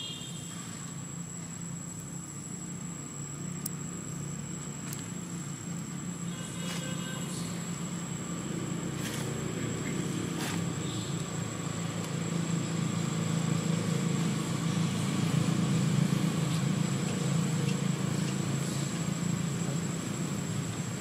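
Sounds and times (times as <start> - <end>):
low engine rumble: 0.0 - 21.0.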